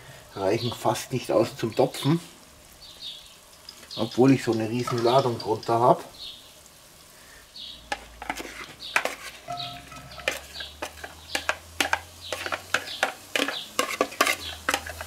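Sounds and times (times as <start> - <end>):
spatula clacking against pot: 7.9 - 15.0
spatula scraping plastic bowl: 8.0 - 15.0.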